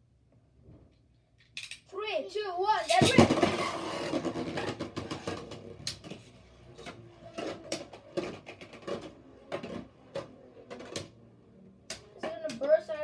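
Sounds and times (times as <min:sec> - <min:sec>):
spinning tops whirring and grinding: 0:02.8 - 0:11.3.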